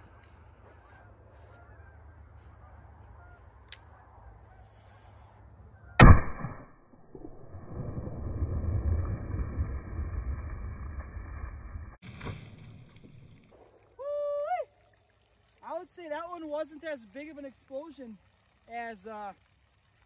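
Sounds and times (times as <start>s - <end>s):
revolver gunshot: 6.0s - 7.3s
low rushing noise: 6.0s - 12.0s.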